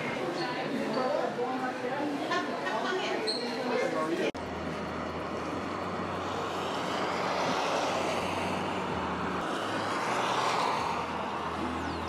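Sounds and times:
road traffic rushing: 4.0 - 12.0.

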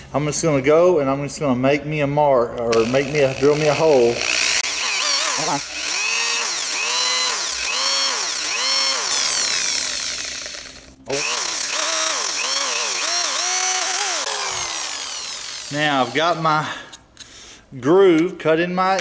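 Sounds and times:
electric drill pulsing: 2.7 - 16.5.

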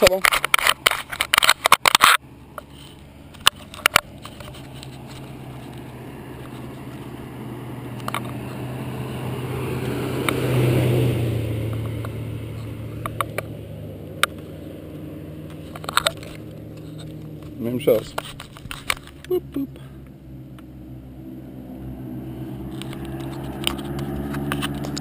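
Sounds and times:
car passing: 0.0 - 25.0
sharp clicks: 13.0 - 13.5.

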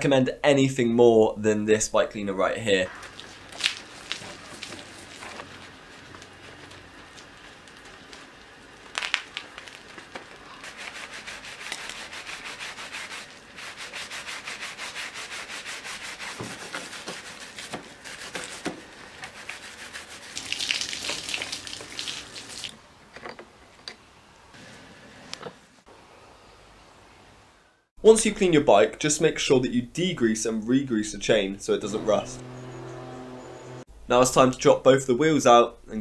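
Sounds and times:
brush scrubbing bike frame: 3.1 - 8.6, 9.7 - 22.7.

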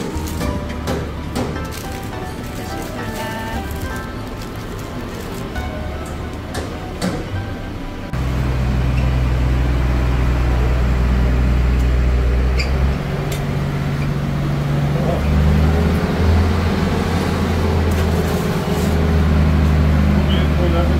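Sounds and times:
street noise: 0.0 - 20.9
vehicle engine idling: 0.0 - 20.9
voices: 2.4 - 5.7.

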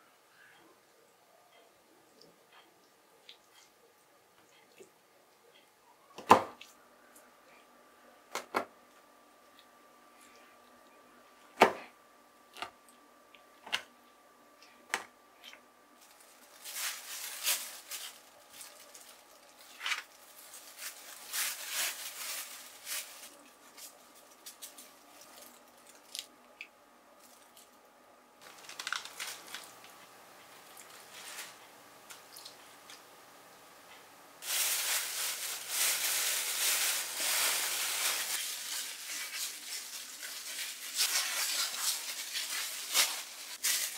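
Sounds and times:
plastic bag rustling: 16.0 - 26.3, 28.4 - 32.9, 34.4 - 43.9.

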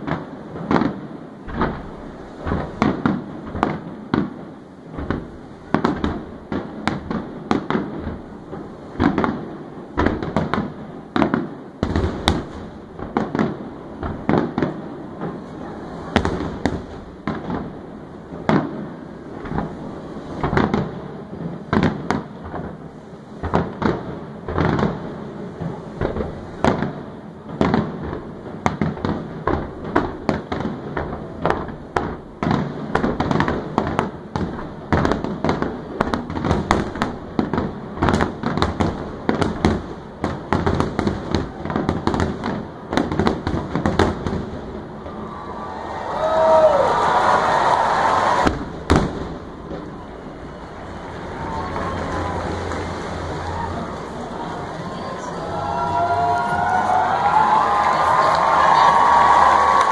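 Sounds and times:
fireworks shells bursting: 0.0 - 9.4, 46.2 - 55.4
continuous rumble: 48.5 - 59.3.

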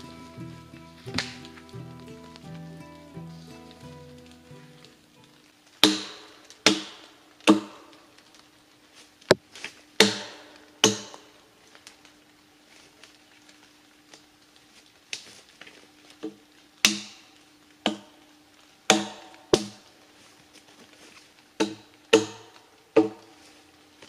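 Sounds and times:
axe striking log: 5.8 - 8.0, 10.0 - 11.3, 16.8 - 17.2, 17.8 - 18.1, 18.9 - 19.8, 21.6 - 23.3.

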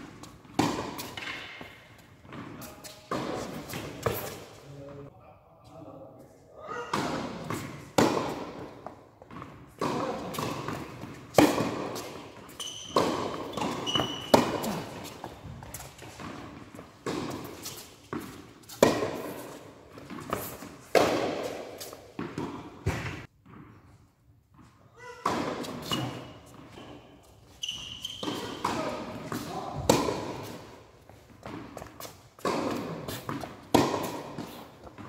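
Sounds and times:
ball bouncing on hard court: 0.0 - 4.4, 6.9 - 23.8, 25.0 - 26.9, 27.6 - 30.6, 31.4 - 35.0
tennis ball struck by rackets: 0.2 - 4.4, 6.9 - 23.6, 25.2 - 26.2, 28.2 - 30.7, 31.4 - 35.0
short high squeaks: 12.5 - 14.4, 25.8 - 28.6.

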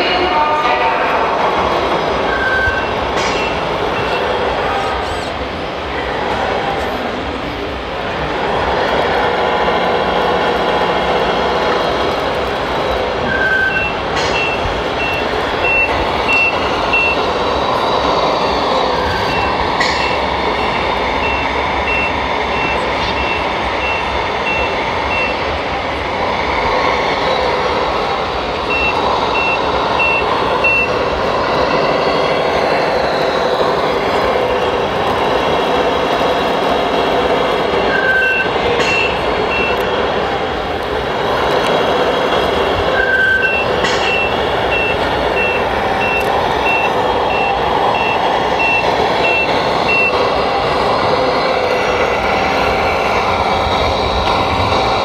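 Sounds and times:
diesel engine sound from speaker: 0.0 - 55.0
reversing beeper: 2.1 - 5.3, 13.2 - 25.7, 27.4 - 34.8, 37.7 - 40.0, 42.8 - 50.8.

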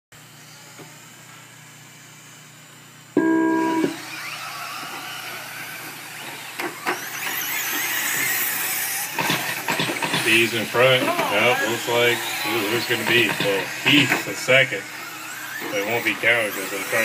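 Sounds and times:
electronic beep: 3.2 - 4.0
rc trucks racing: 3.6 - 17.0.

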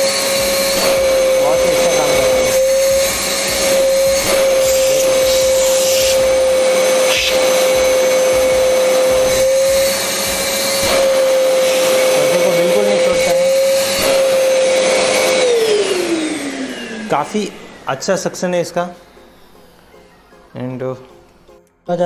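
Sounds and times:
vacuum cleaner motor whine: 0.0 - 21.5.

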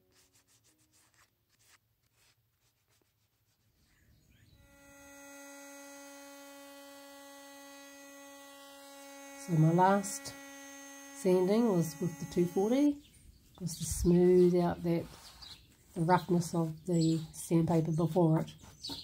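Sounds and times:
sandpaper rubbing on wood: 0.0 - 4.0
electric sander humming: 4.5 - 13.0.

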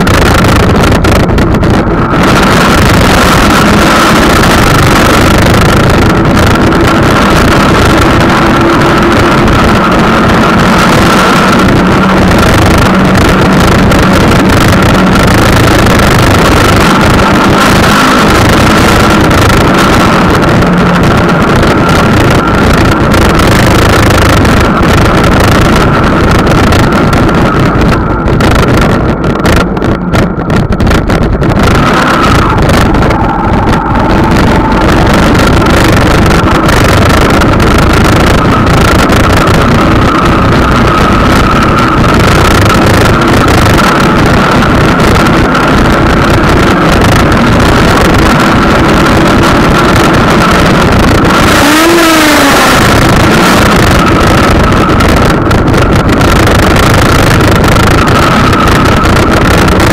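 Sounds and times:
faint steady whine: 0.0 - 59.9
road and drive noise: 0.0 - 59.9
wind buffeting microphone: 0.0 - 59.9.

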